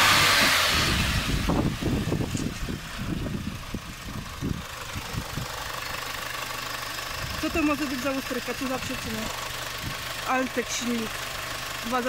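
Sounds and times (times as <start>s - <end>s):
loud rushing sound: 0.0s - 5.7s
car engine idling: 0.0s - 12.0s.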